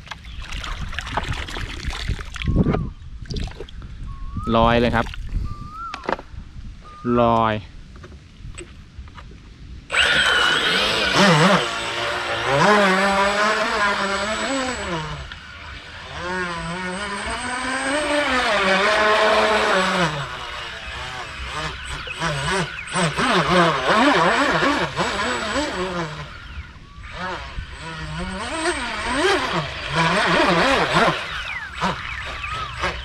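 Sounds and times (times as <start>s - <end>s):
electric boat motor whining: 9.9s - 33.0s.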